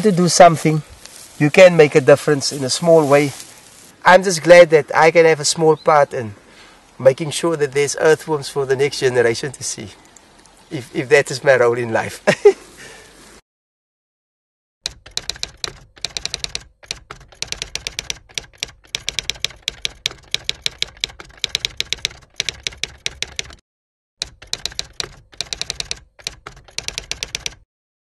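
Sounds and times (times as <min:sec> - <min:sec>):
typewriter keys clacking: 0:14.9 - 0:23.6, 0:24.2 - 0:27.6.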